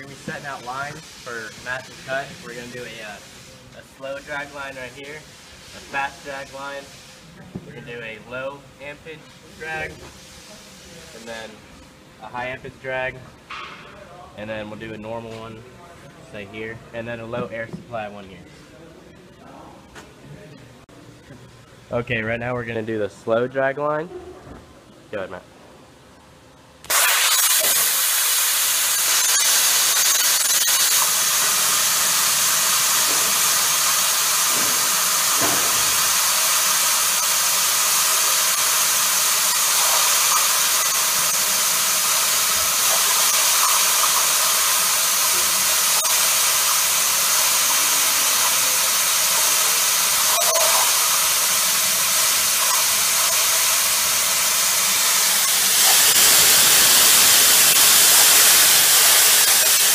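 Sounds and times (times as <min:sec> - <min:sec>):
plasma cutter hissing: 0:00.0 - 0:07.3, 0:09.6 - 0:11.6, 0:26.9 - 0:59.9.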